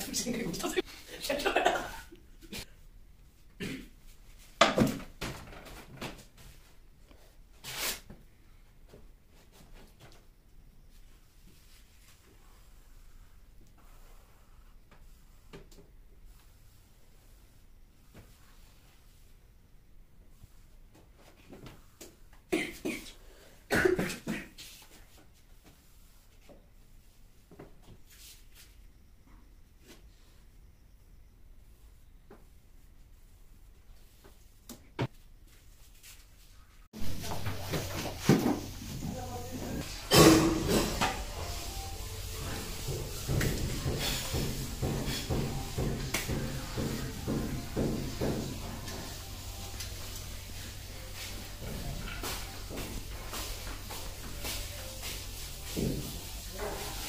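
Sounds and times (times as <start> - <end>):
person coughing: 3.6 - 4.0, 22.5 - 24.6, 40.0 - 40.9
knocks of painting tools: 40.1 - 49.2.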